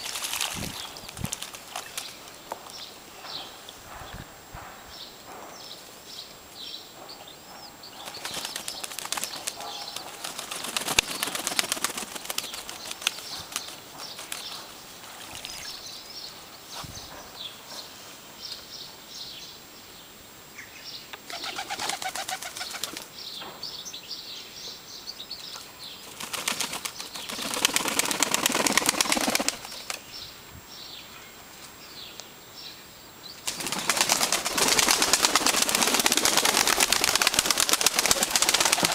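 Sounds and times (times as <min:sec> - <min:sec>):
pigeons flapping wings: 0:00.0 - 0:02.3, 0:08.0 - 0:15.6, 0:21.3 - 0:23.1, 0:26.0 - 0:30.0, 0:33.4 - 0:38.9.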